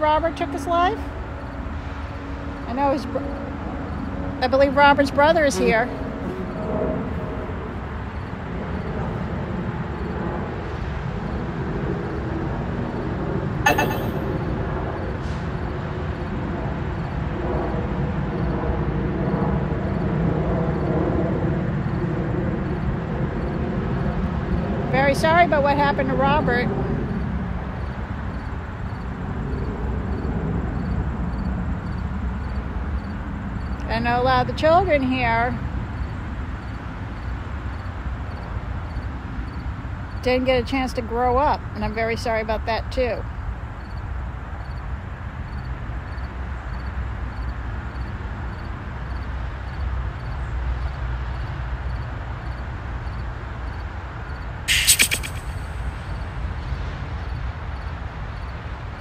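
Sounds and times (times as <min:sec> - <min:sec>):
faint insect chirps: 0:13.7 - 0:14.2, 0:51.9 - 0:56.4
faint insect chirping: 0:43.8 - 0:44.9, 0:45.5 - 0:56.3.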